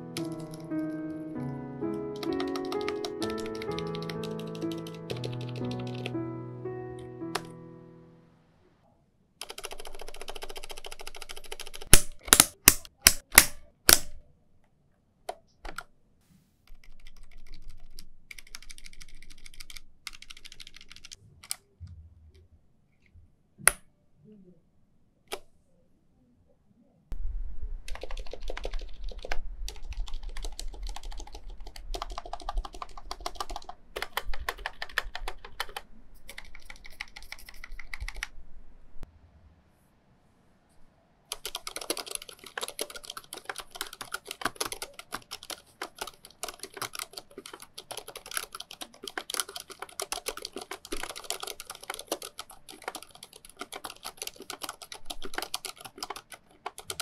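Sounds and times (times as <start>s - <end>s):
muted keyboard keystrokes: 0.1s - 0.7s, 2.2s - 6.1s, 9.4s - 14.2s, 16.7s - 21.6s, 27.9s - 38.3s, 41.3s - 57.0s.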